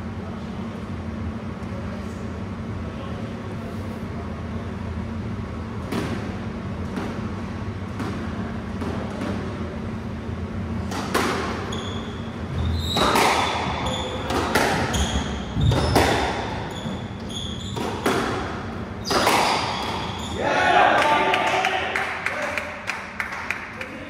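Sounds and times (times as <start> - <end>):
squash ball hitting rackets and walls: 5.8 - 9.9, 10.7 - 20.4
shoes squeaking on wooden floor: 11.6 - 18.1.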